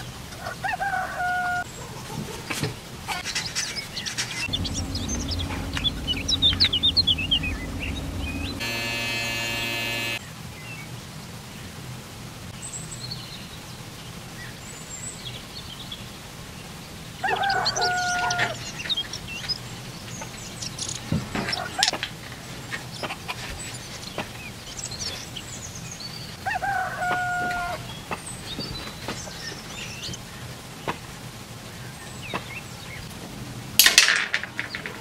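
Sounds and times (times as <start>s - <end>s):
rooster crowing: 0.4s - 1.7s, 4.5s - 10.2s, 17.2s - 18.6s, 26.4s - 27.8s
small birds chirping: 14.4s - 26.4s.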